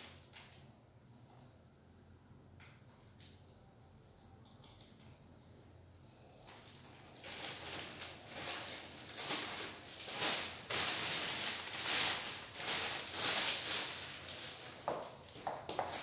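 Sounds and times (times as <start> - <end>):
plastic bag crinkling: 6.4 - 16.0.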